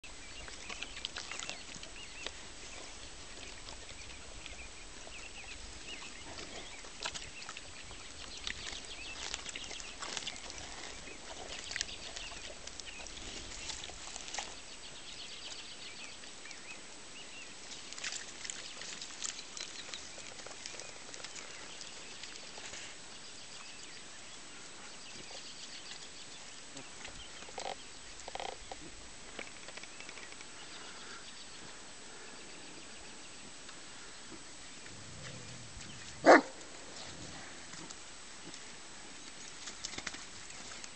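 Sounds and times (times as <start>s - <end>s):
pig snuffling: 0.1s - 14.7s, 17.6s - 23.2s, 34.3s - 40.9s
crunches of dry grass: 0.1s - 15.0s.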